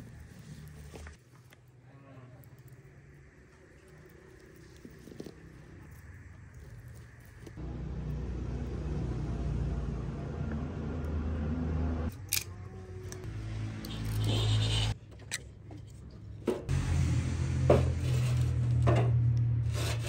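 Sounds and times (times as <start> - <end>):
low engine rumble: 1.9 - 15.0.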